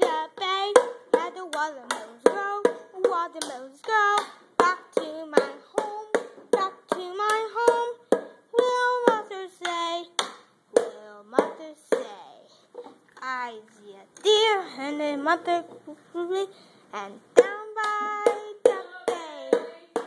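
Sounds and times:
high voice singing: 13.2 - 20.0.

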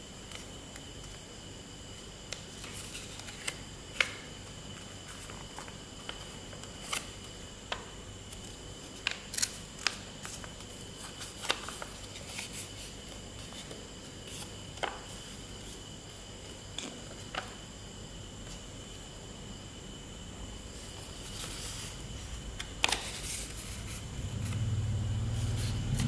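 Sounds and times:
paper crinkling and folding: 8.3 - 15.8.

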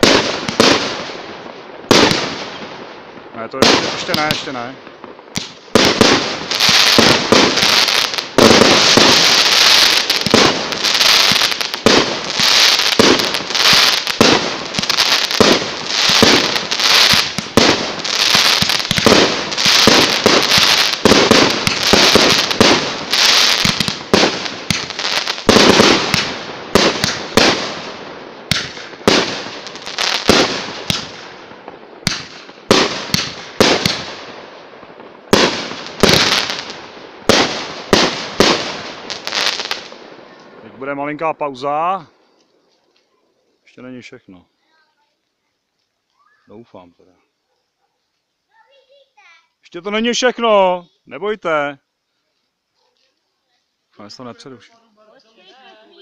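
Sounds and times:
fireworks bangs: 0.0 - 42.8.

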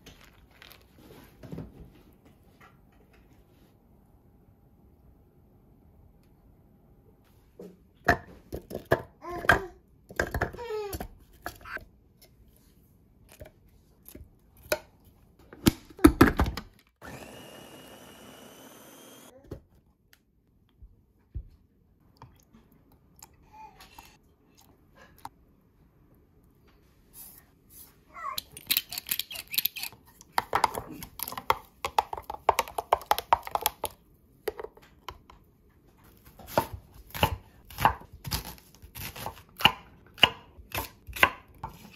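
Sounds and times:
electric mini chopper motor: 17.0 - 19.3
ingredients clicking in plastic bowl: 30.4 - 35.2
knife chopping onion on wooden board: 36.4 - 41.9.

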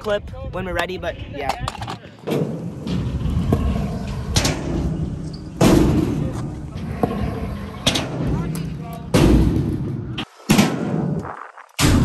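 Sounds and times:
scooter wheels rumbling on concrete: 1.6 - 10.4
scooter knocking and landing on ramps: 5.6 - 7.2.

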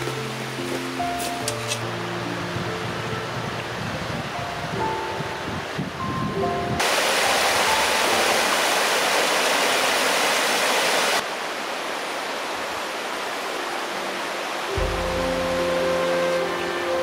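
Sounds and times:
soft background music: 0.0 - 6.8, 13.4 - 17.0
stream rushing over rocks: 6.8 - 17.0.

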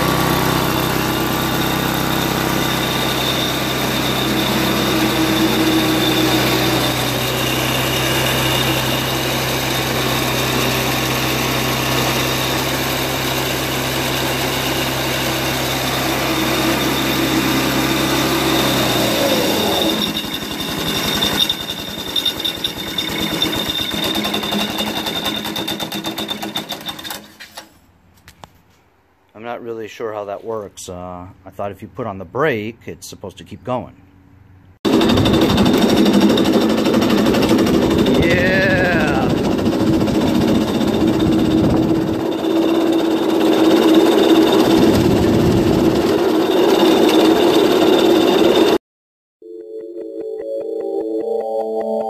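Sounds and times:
go-kart engine running: 0.0 - 27.3, 34.9 - 48.8
chain driving rear wheel: 18.2 - 27.7.

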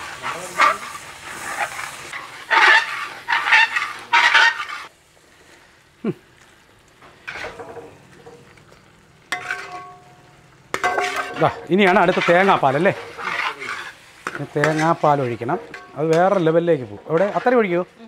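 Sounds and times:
spoon stirring and scraping pan: 0.0 - 5.6, 7.0 - 18.0.

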